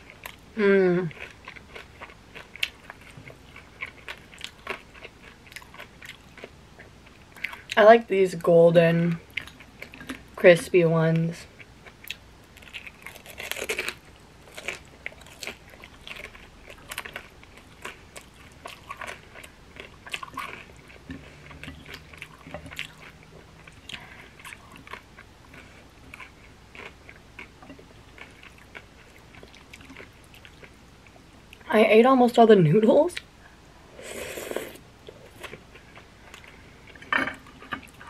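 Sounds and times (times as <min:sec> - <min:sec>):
wet chewing and mouth clicks: 0:11.6 - 0:30.7
crispy dumpling crunching: 0:11.8 - 0:21.0.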